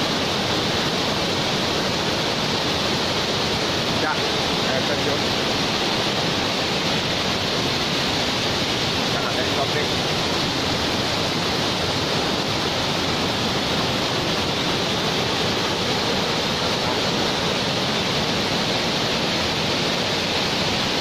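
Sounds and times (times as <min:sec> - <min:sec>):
waterfall roar: 0:00.0 - 0:21.0.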